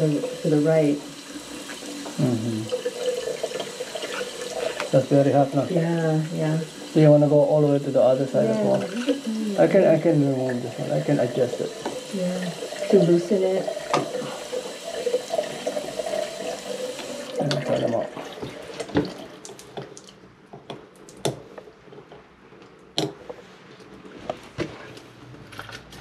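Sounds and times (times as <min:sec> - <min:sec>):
shower water running: 0:00.0 - 0:20.2.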